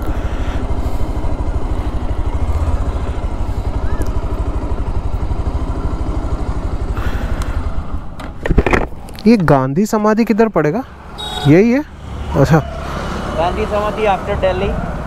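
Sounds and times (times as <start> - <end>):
motorcycle engine running at low revs: 0.0 - 9.1.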